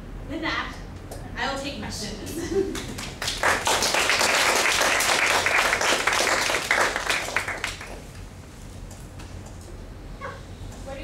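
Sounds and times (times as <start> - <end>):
audience applauding: 2.7 - 8.1.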